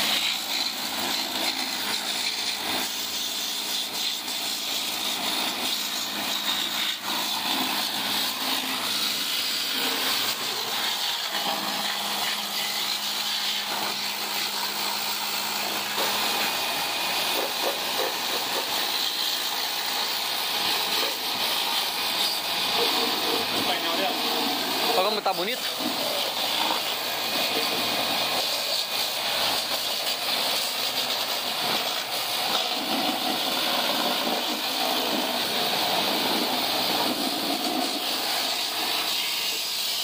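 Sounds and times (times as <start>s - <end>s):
water jet spraying: 0.0s - 40.0s.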